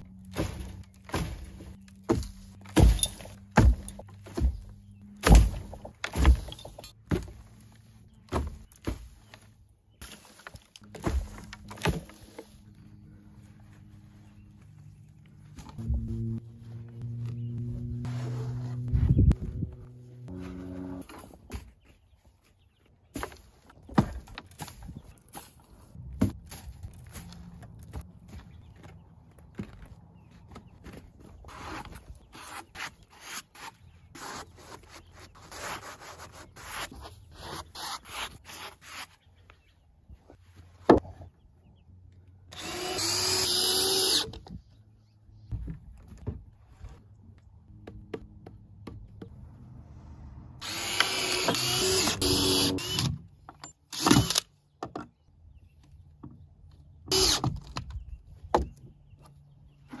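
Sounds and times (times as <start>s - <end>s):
cordless drill driving screws: 42.5s - 44.3s, 50.6s - 53.2s, 53.9s - 54.5s, 57.1s - 57.5s.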